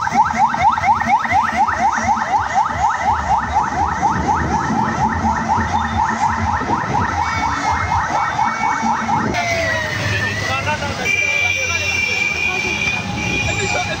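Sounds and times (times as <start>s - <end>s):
police siren yelping: 0.0s - 11.0s.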